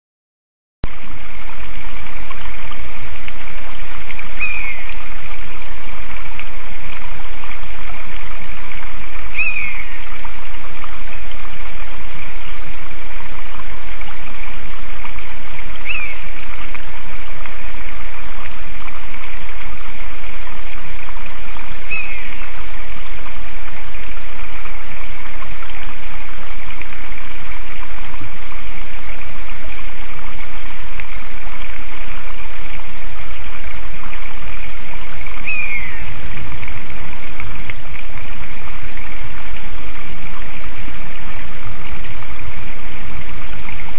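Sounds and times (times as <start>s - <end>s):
bird calling: 4.4s - 4.9s, 9.4s - 10.0s, 15.8s - 16.3s, 21.9s - 22.4s, 35.4s - 36.1s.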